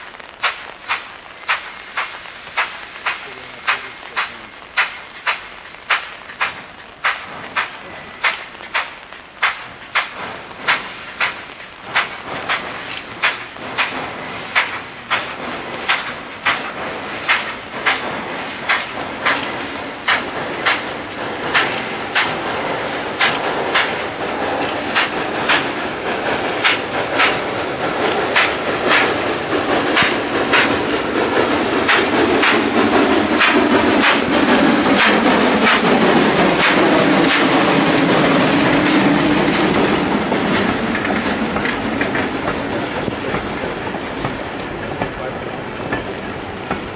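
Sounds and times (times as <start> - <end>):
steam locomotive exhaust chuffs: 0.0 - 46.9
loud rushing rumble: 13.6 - 44.6.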